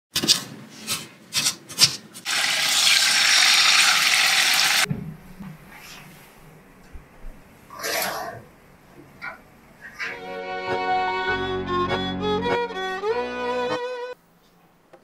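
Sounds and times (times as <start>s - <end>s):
meat sizzling in hot oil: 2.3s - 4.9s.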